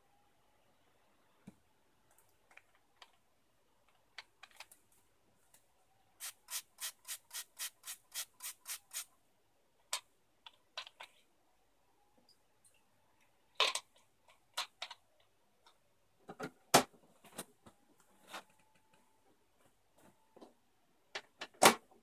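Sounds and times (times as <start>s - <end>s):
rubbing strokes: 6.2s - 9.1s.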